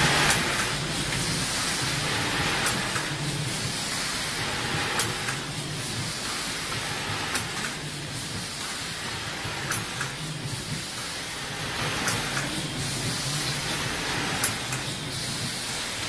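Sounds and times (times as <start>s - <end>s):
machine humming and hissing: 0.0s - 16.0s
sharp machine click: 5.0s - 5.5s, 7.3s - 7.8s, 9.6s - 10.2s, 12.0s - 12.6s, 14.3s - 15.0s.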